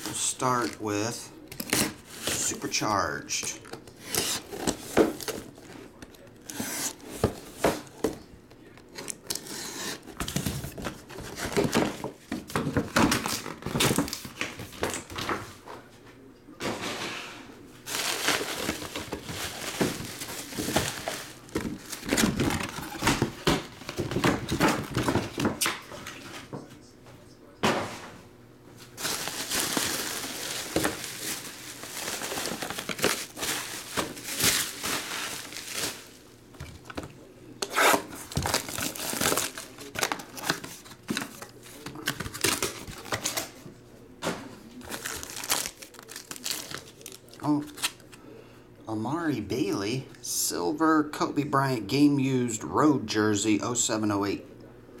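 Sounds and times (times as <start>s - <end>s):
bubble wrap crinkling: 17.8s - 25.2s, 28.9s - 37.0s, 37.6s - 43.5s, 44.8s - 48.0s.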